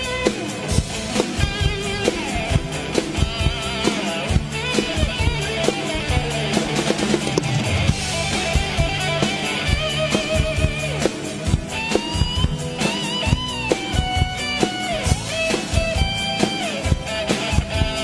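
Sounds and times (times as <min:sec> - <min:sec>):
drum kit with cymbals: 0:00.0 - 0:18.0
electric guitar lead: 0:00.0 - 0:18.0.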